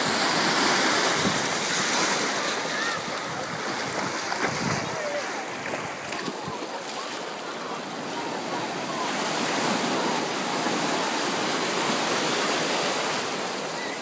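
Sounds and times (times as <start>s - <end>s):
small waves washing on sand: 0.0s - 14.0s.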